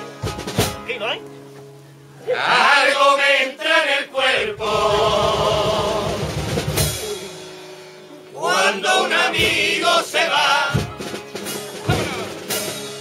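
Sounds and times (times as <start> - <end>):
drums: 0.0 - 1.8, 4.3 - 13.0
group singing in chorus: 2.2 - 6.7, 8.3 - 11.0
guitars: 10.7 - 13.0.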